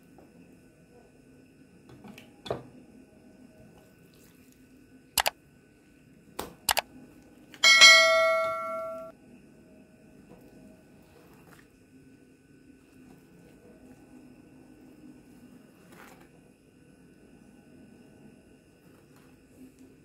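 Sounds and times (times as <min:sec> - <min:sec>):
bright bell chime: 0:07.6 - 0:09.1.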